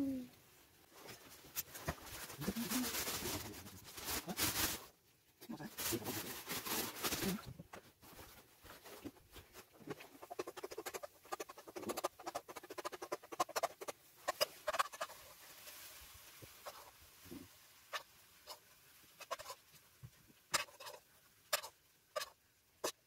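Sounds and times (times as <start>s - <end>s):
packaging rustling: 5.7s - 15.2s
utensil scraping a frying pan: 10.0s - 17.0s, 17.9s - 19.6s.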